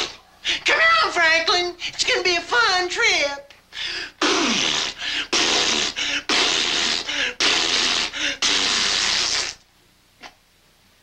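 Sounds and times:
man making spluttering mouth noises: 4.2 - 10.4.

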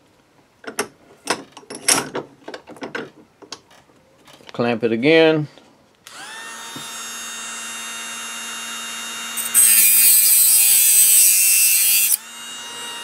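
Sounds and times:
rotary tool whine: 6.1 - 13.0
grinding hiss cutting metal: 9.4 - 12.2.

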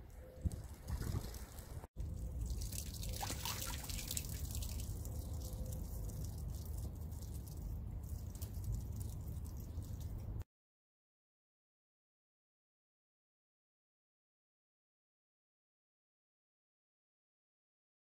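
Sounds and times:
water gushing onto paving: 0.5 - 10.4.

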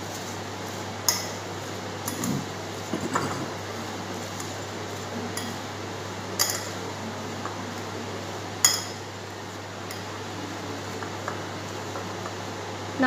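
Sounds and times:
spoon stirring in glass bowl: 2.0 - 5.6.

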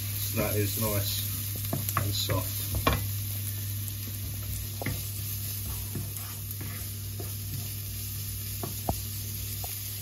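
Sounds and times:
shallots sizzling in oil: 0.0 - 10.0
wooden spoon scraping a pan: 4.2 - 9.0.

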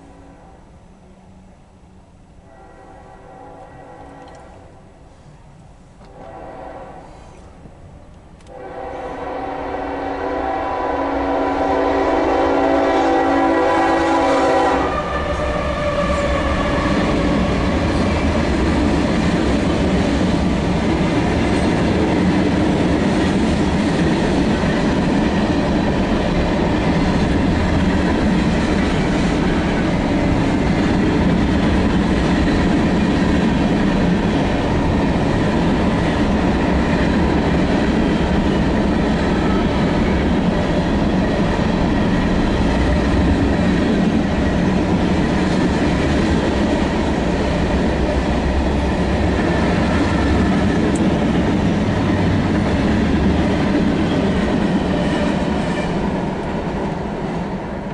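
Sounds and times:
diesel locomotive passing: 0.0 - 57.9
steel wheels on rails: 14.1 - 57.8.

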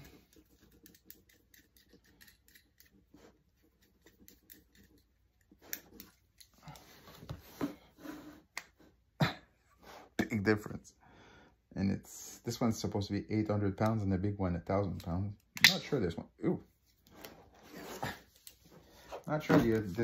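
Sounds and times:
magnets clicking and knocking: 0.0 - 3.1, 3.7 - 6.8.

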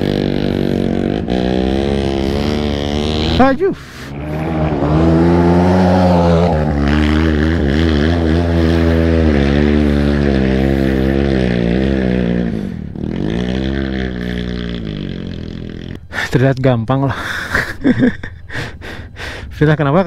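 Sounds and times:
dirt bike engine revving: 0.0 - 16.2.

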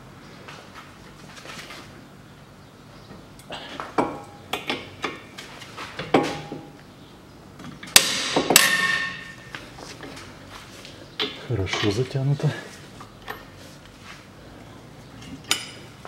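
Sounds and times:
ringing metallic bangs: 8.0 - 9.5.

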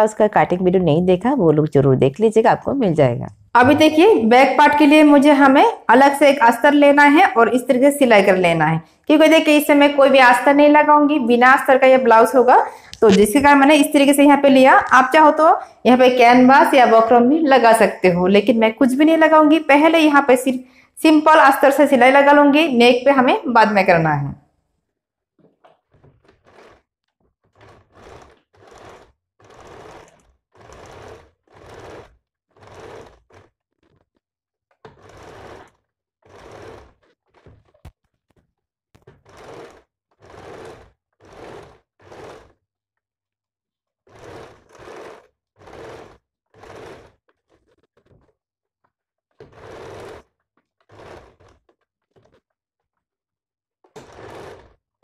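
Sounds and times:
sewing machine stitching: 3.3 - 24.0, 25.4 - 42.7, 43.9 - 53.0, 53.8 - 55.0.

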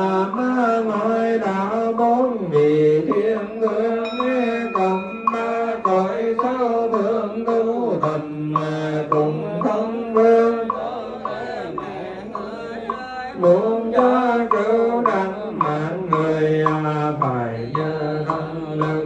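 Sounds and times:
funeral chanting: 0.0 - 19.0
steady percussive beat: 0.0 - 19.0
slow pitch-bending melody: 3.2 - 7.3.

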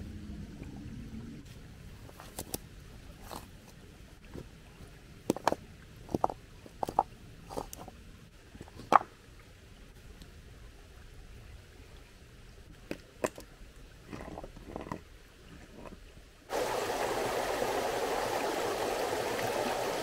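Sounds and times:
stones knocking and scraping: 3.2 - 8.0, 8.6 - 9.1, 12.8 - 13.5, 14.1 - 16.0.

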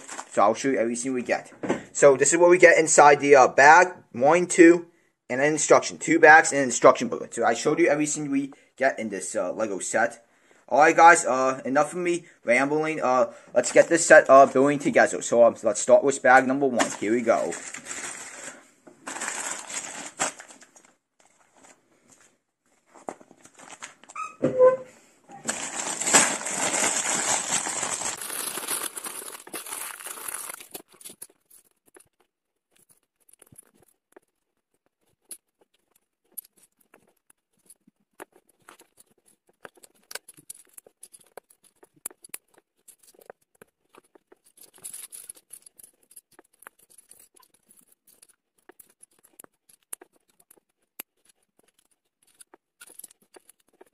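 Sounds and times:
plastic bag crinkling and tearing: 0.0 - 0.4, 16.7 - 21.8, 23.1 - 24.2, 25.4 - 34.1.

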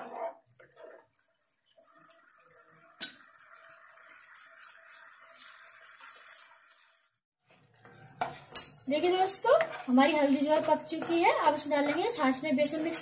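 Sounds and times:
oil bubbling in a pan: 0.4 - 9.6.

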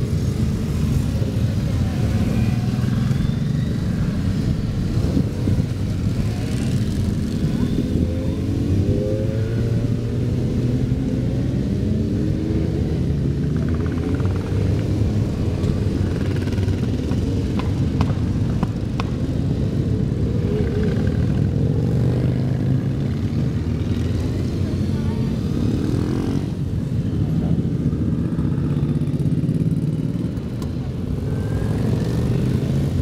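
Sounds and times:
motorcycle engines rumbling: 0.0 - 33.0.

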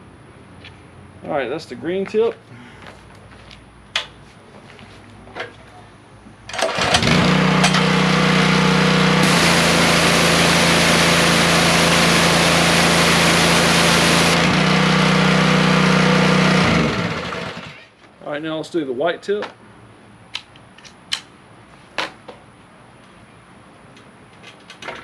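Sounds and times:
small gas engine running: 6.6 - 17.8.

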